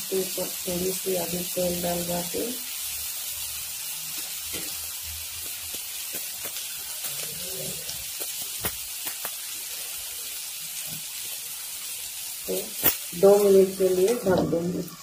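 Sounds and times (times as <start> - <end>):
pancake sizzling in oil: 0.0 - 15.0.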